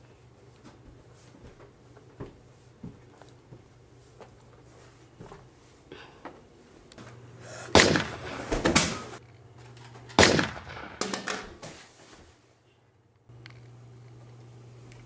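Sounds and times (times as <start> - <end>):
loud gunshots: 7.8 - 9.0, 10.2 - 11.2.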